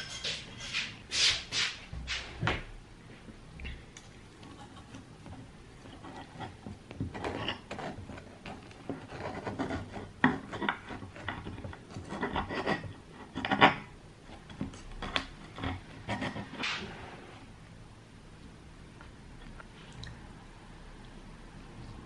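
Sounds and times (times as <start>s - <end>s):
knife sawing through pizza crust: 7.2s - 11.2s.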